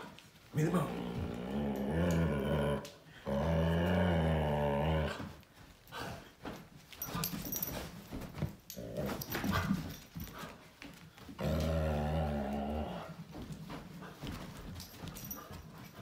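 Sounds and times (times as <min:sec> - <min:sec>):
dog growling: 0:00.6 - 0:05.3, 0:11.4 - 0:13.2.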